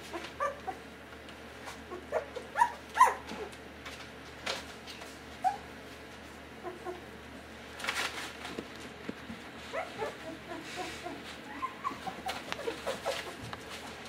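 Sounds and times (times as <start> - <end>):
puppies whimpering and squeaking: 0.0 - 0.9, 1.6 - 3.6, 5.3 - 5.8, 6.6 - 7.1, 9.6 - 14.0
scratchy rustle: 12.2 - 14.0.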